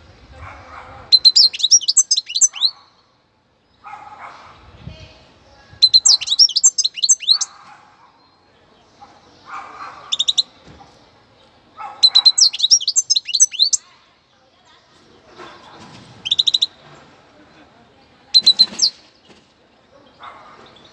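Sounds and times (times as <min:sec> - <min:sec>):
goldfinch twittering song: 0:01.2 - 0:02.8, 0:05.8 - 0:07.6, 0:12.0 - 0:13.8, 0:18.4 - 0:19.0.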